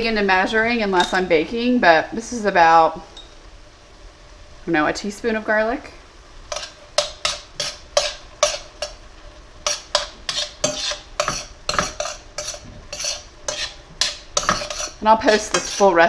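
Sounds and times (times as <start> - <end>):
metal spoon scraping skillet: 6.5 - 16.0.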